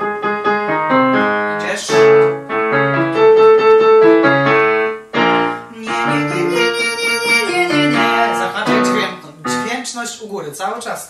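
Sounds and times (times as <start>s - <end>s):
digital piano playing chords: 0.0s - 10.2s.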